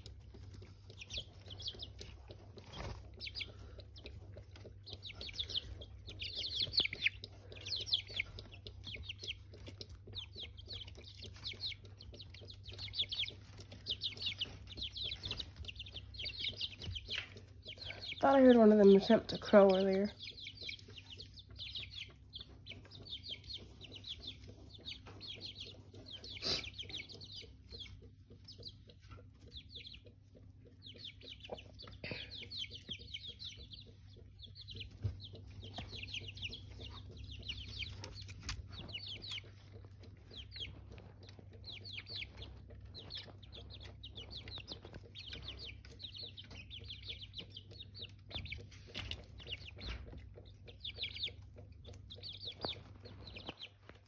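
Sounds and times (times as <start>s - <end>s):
chicks peeping: 0.0s - 54.0s
low steady hum: 0.0s - 54.0s.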